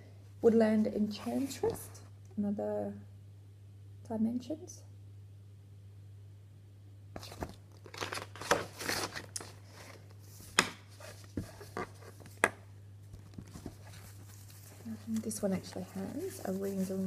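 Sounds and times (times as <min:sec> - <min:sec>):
packaging and fabric rustling: 0:07.2 - 0:12.4, 0:13.1 - 0:17.0.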